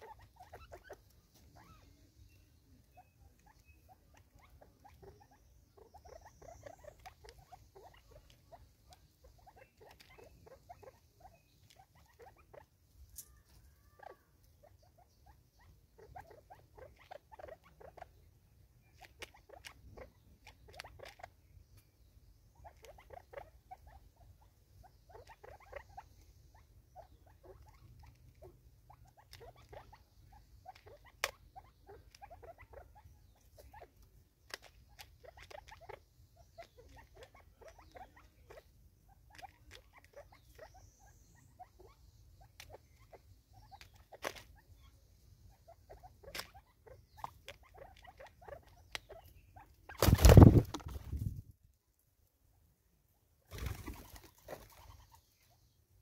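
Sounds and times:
birds pecking on wood: 0:50.0 - 0:51.2.

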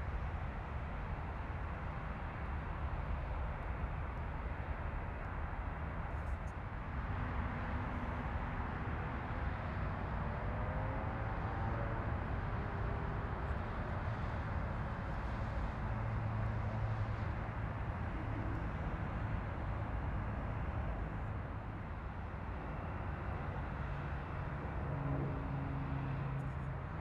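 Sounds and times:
propeller plane engines droning: 0:11.0 - 0:27.0.

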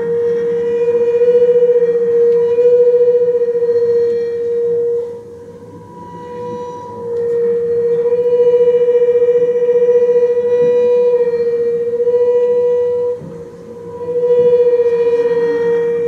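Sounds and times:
bowed double bass note: 0:00.0 - 0:16.0.

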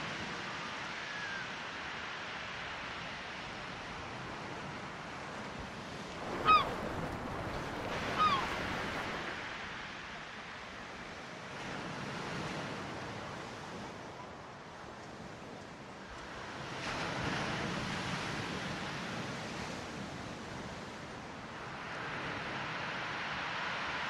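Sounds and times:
sea surf: 0:00.0 - 0:24.0
wind: 0:00.0 - 0:24.0
falling bird calls: 0:06.2 - 0:09.2.

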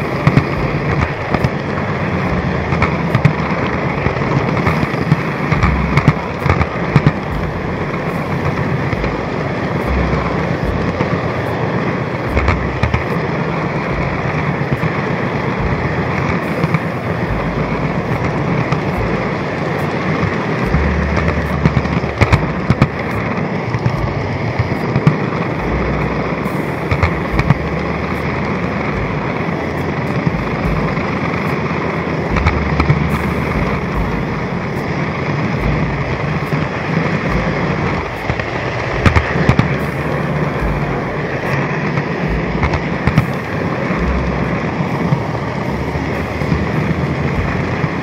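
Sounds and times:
sharp track clicks: 0:00.0 - 0:48.0.

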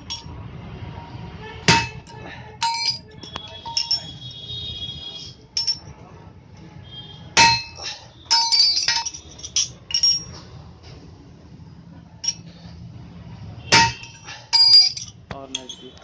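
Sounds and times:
hammer striking steel on anvil: 0:01.7 - 0:03.0, 0:07.4 - 0:09.2, 0:13.7 - 0:15.0.

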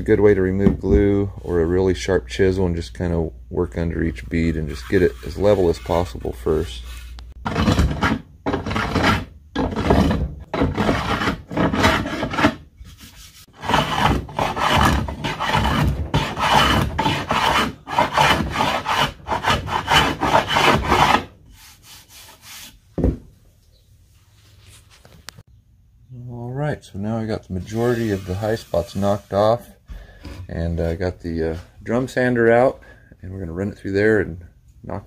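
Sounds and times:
hand plane rasping strokes: 0:04.7 - 0:22.8, 0:27.6 - 0:30.6.

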